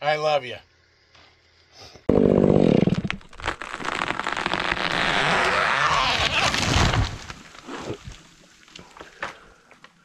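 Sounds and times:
chainsaw running: 2.1 - 3.0
branches cracking and snapping: 2.8 - 9.4
snow crashing down: 3.0 - 8.6.

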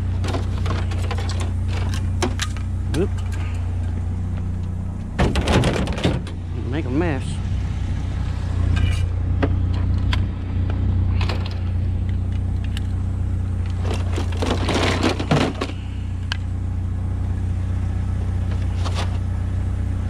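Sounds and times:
vehicle engine idling: 0.0 - 20.0
metal and plastic junk clattering: 0.2 - 4.0, 5.2 - 6.4, 13.8 - 15.8.

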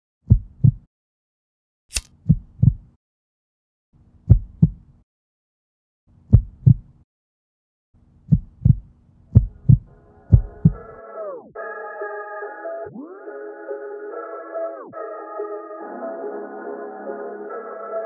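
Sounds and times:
heartbeat thumps: 0.3 - 0.9, 2.2 - 3.0, 4.3 - 4.9, 6.3 - 7.0, 8.2 - 11.0.

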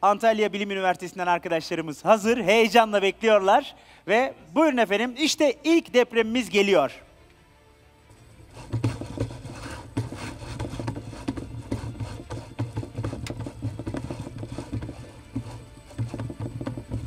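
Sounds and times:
rapid clattering and rattling: 8.5 - 17.0.

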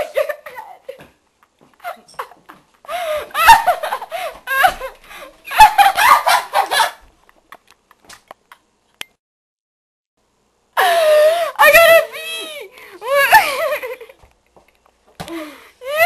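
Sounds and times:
high-pitched laughter: 3.3 - 7.8.

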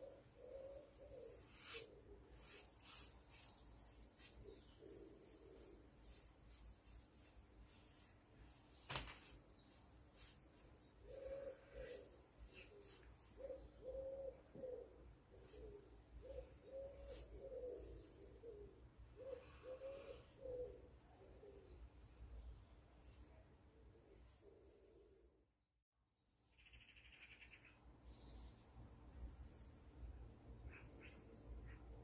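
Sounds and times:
dove cooing: 0.0 - 2.2, 11.0 - 21.7
small birds chirping: 0.0 - 25.6, 26.3 - 32.0.

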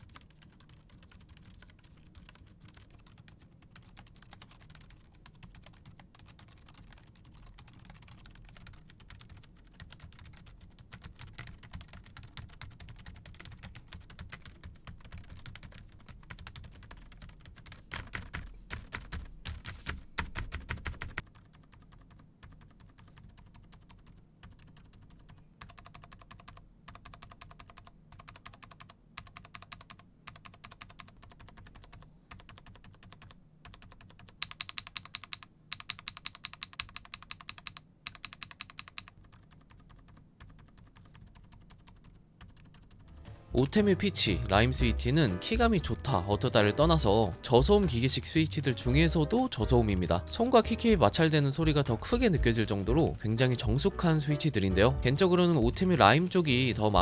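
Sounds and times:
mechanical keyboard typing: 0.0 - 43.2.

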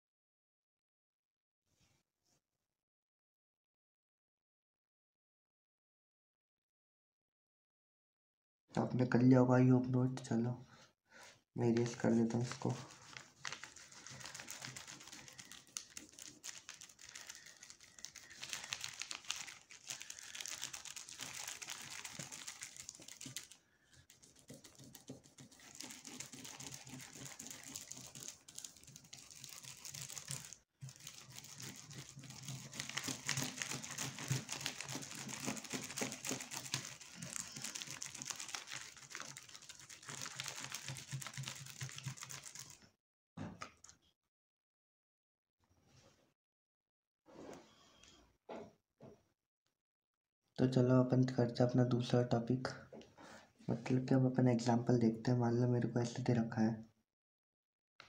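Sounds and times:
plastic sheet crinkling: 11.6 - 42.8
cloth scrubbing a whiteboard: 12.1 - 42.8.

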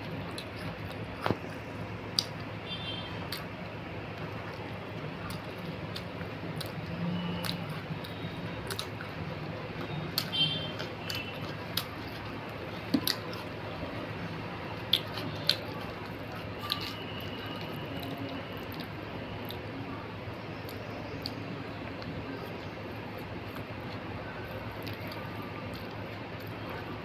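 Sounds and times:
person chewing bread: 0.0 - 2.5, 3.2 - 19.9, 20.6 - 27.0
mouth clicks and smacks: 0.1 - 2.5.

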